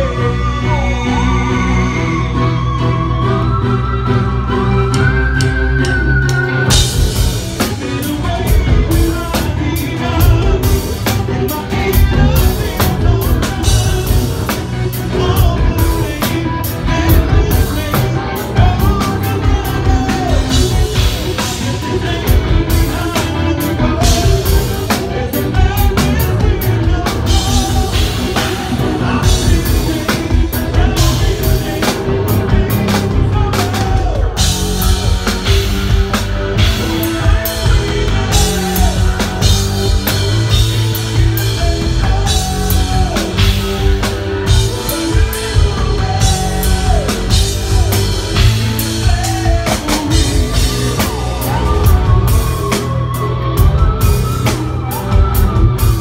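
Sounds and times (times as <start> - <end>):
man singing: 0.0 - 3.0, 5.7 - 56.0
metal band playing live: 0.0 - 56.0
pounding drum kit: 4.8 - 56.0.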